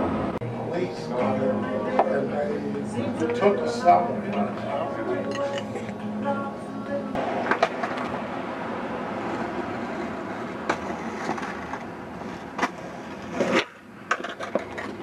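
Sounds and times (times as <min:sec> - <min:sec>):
skateboard wheels rolling on pavement: 0:07.2 - 0:15.0
skateboard clacks: 0:07.4 - 0:08.2, 0:09.2 - 0:15.0.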